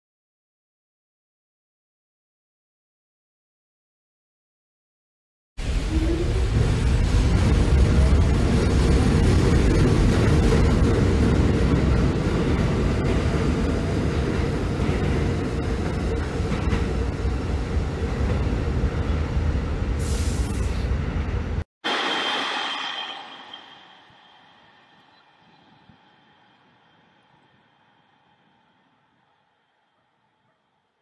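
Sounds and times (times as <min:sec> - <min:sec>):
subway train rumbling past: 0:05.6 - 0:29.2.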